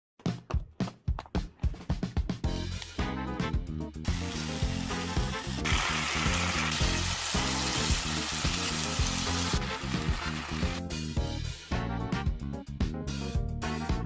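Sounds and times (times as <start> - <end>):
background music with steady beat: 0.2 - 14.0
chicken sizzling in a frying pan: 4.1 - 10.8.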